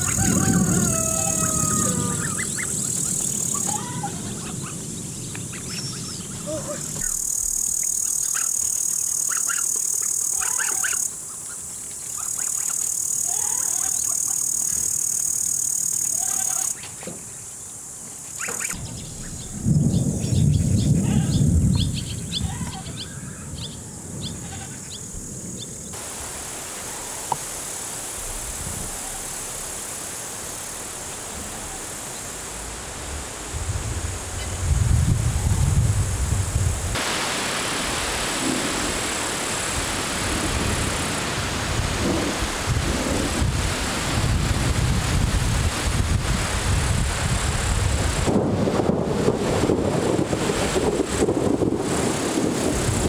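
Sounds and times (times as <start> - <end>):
insect trill: 0.0 - 37.0, 37.7 - 42.5
wind hiss: 0.0 - 53.0
bird chirps: 4.4 - 16.9, 18.4 - 23.8.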